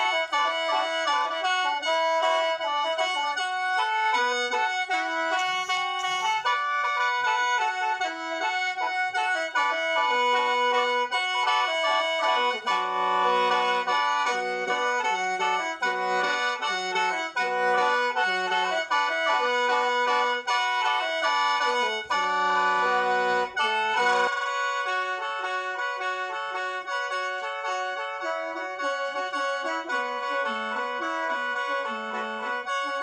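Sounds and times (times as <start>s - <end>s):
mouth organ melody with drone: 0.0s - 33.0s.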